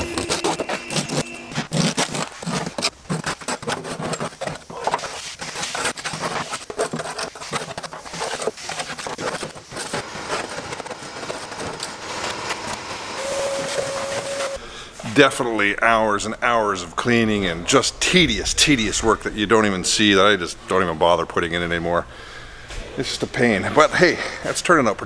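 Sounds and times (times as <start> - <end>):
hand scraper scratching glue: 0.0 - 14.6.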